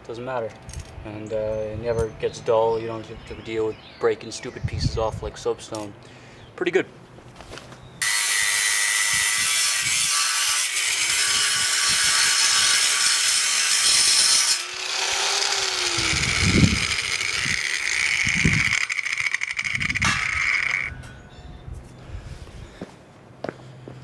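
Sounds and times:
angle grinder cutting steel: 8.0 - 21.2
grinder running free: 8.0 - 21.2.

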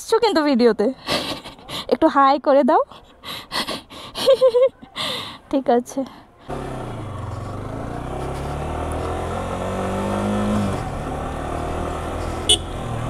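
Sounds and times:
motorcycle engine running: 6.5 - 13.0.

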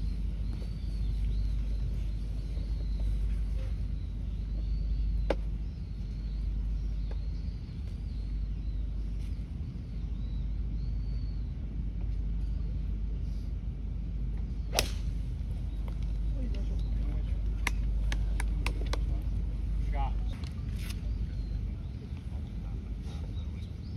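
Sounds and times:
faint bird chirps: 0.0 - 11.6
low outdoor rumble: 0.0 - 23.9
golf club striking ball: 14.7 - 15.1.

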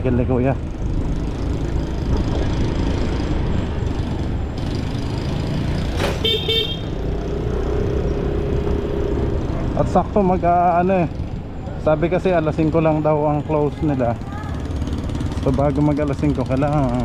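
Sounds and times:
motorcycle engine: 0.0 - 17.0
road rumble: 0.0 - 17.0
vehicle horn toot: 6.2 - 6.9.

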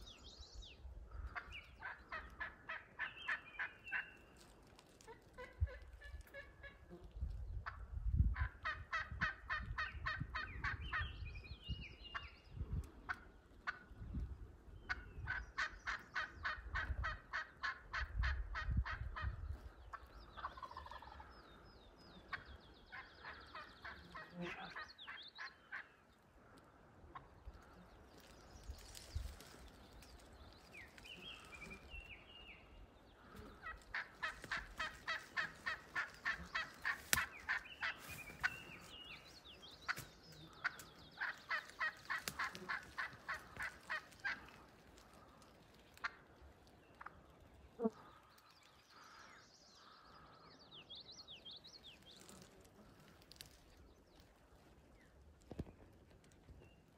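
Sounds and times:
turkey yelping: 33.6 - 38.5, 41.2 - 44.4.

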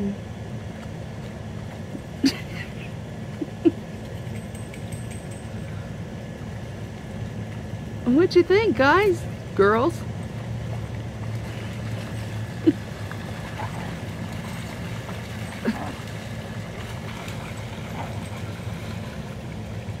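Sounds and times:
dogs splashing through water: 9.2 - 20.0.

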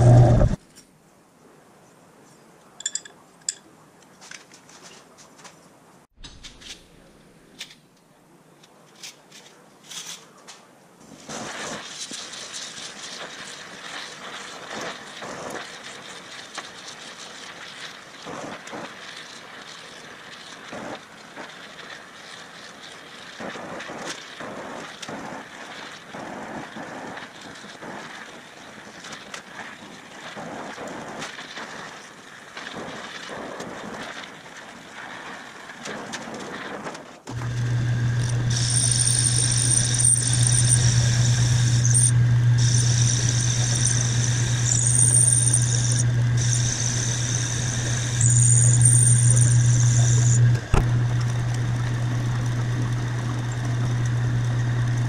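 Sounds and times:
gas torch hissing: 0.0 - 0.6, 37.3 - 55.0
crackling: 8.9 - 55.0.

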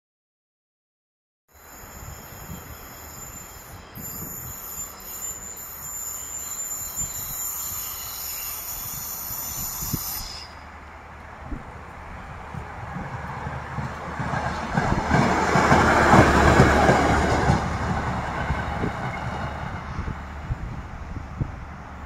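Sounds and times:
high-pitched wheel squeal: 1.5 - 10.8
motor car rumbling on rails: 10.5 - 22.0.

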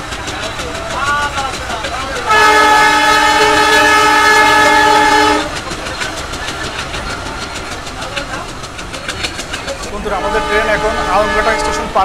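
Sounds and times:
train wheels on rails: 0.0 - 12.0
train horn blast: 2.3 - 5.5, 10.2 - 12.0.

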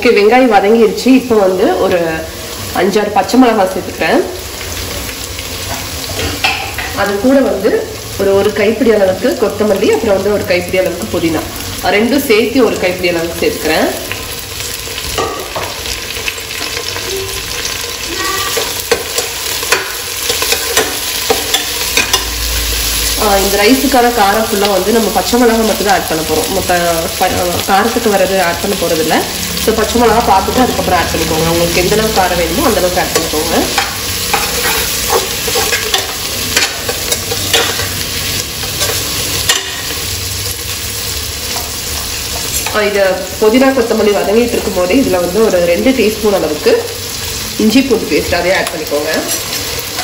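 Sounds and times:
food sizzling in hot oil: 0.0 - 50.0
spatula scraping a pan: 33.1 - 38.0.

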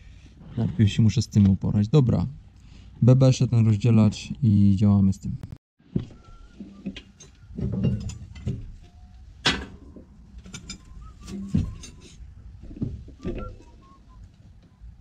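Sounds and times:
tools and metal parts clanking: 6.6 - 13.8.

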